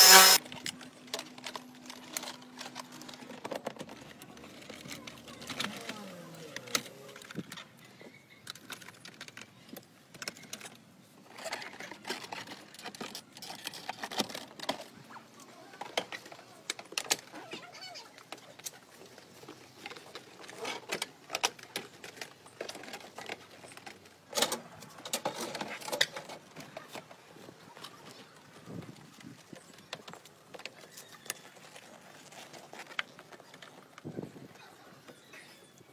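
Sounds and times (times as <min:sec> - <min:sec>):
plastic and metal parts clicking: 0:00.0 - 0:15.1, 0:15.7 - 0:17.5, 0:18.1 - 0:27.2.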